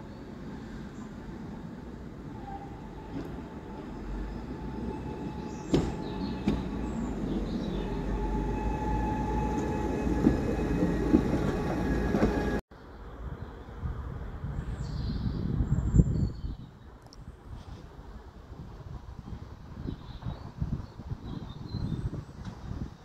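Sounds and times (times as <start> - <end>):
train rumble: 0.0 - 12.6.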